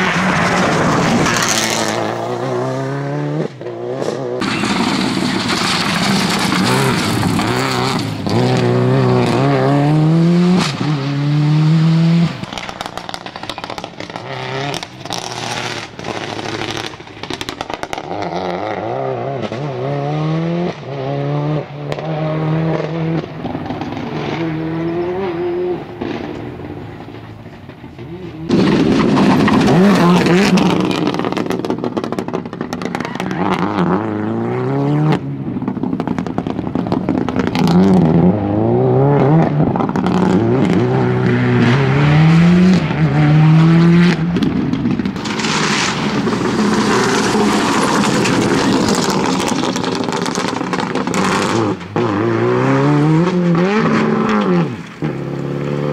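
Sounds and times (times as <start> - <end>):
rally car engine accelerating: 0.0 - 17.0, 17.8 - 55.9
sharp cracks between shifts: 4.4 - 8.3, 44.2 - 52.0.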